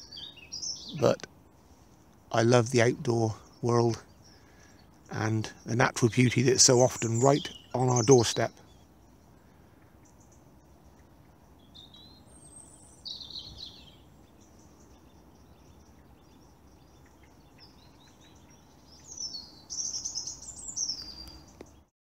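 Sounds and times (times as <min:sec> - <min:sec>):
faint steady hum: 0:00.0 - 0:21.9
small birds singing: 0:00.0 - 0:21.9.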